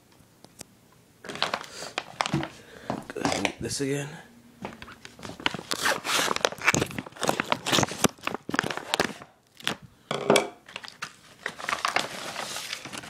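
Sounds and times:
plastic packaging crinkling: 0:01.2 - 0:03.6, 0:04.8 - 0:09.9, 0:10.6 - 0:13.0.

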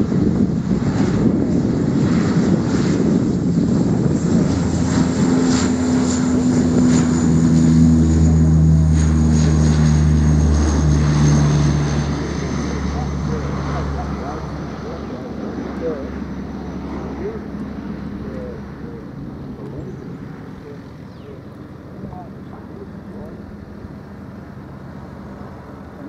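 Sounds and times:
deep propeller drone: 0:00.0 - 0:26.0
high turbine whine: 0:00.0 - 0:26.0.

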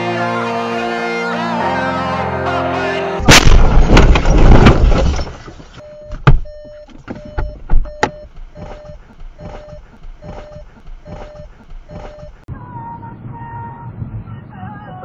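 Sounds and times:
car crashing bang: 0:03.2 - 0:05.7
car warning chime beeping: 0:05.8 - 0:12.5.

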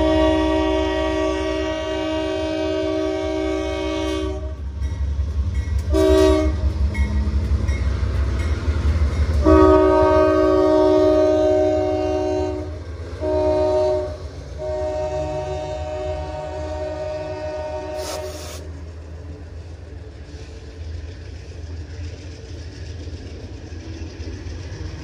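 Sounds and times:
locomotive air horn blasts: 0:00.0 - 0:04.6, 0:05.9 - 0:06.6, 0:09.4 - 0:18.6
diesel locomotive rumble: 0:00.0 - 0:25.0.

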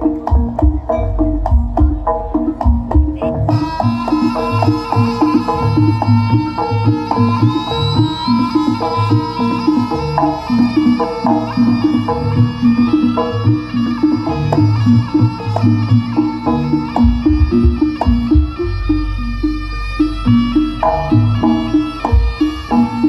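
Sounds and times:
reed pipe melody: 0:00.0 - 0:23.0
steady drumming: 0:00.0 - 0:23.0
heavy low thumps: 0:16.9 - 0:21.5.

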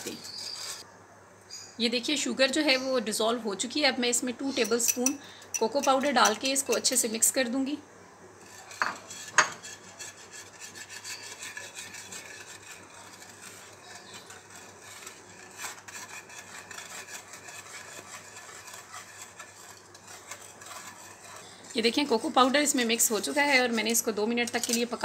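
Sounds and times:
whisk scraping against saucepan: 0:00.0 - 0:00.8, 0:08.4 - 0:25.0.

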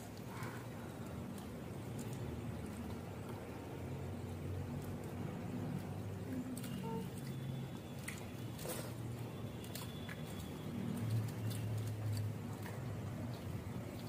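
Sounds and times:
chewing: 0:05.8 - 0:14.0.

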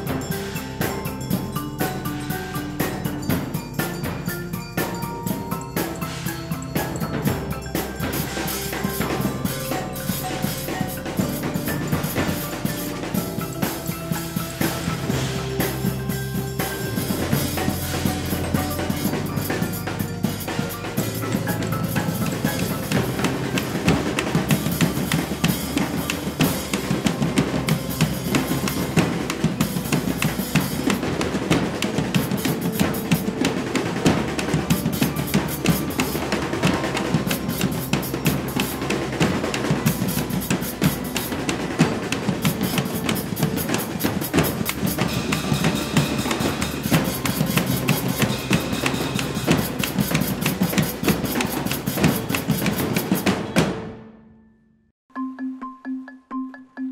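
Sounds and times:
rapid drumming music: 0:00.0 - 0:53.9.

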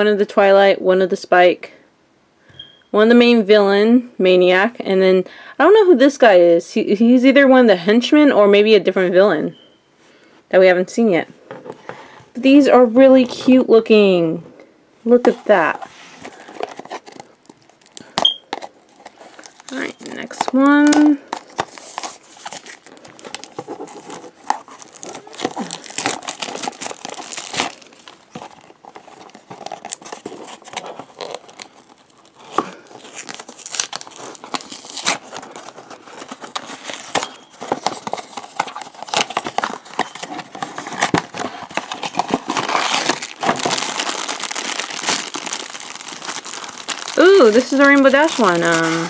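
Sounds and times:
foil wrapper crinkling: 0:15.5 - 0:49.0
cardboard box being torn open: 0:21.4 - 0:27.8, 0:28.4 - 0:49.0.

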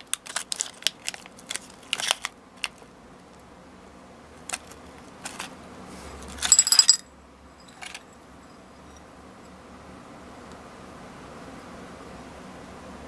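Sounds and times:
foil wrapper crinkling: 0:00.0 - 0:02.9, 0:04.5 - 0:05.5
candy clattering onto ceramic plate: 0:06.3 - 0:08.1.

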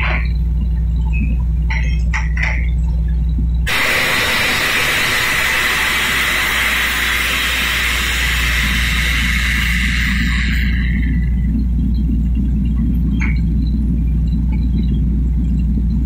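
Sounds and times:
engine drone: 0:00.0 - 0:16.0
compressed air hissing: 0:03.7 - 0:11.6.

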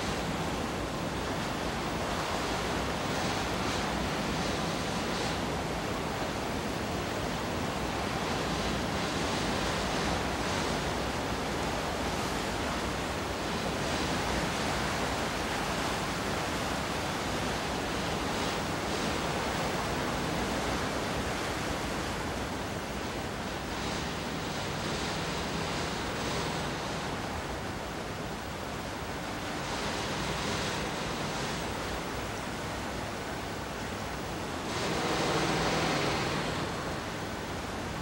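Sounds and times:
wind and sea water rushing: 0:00.0 - 0:38.0.

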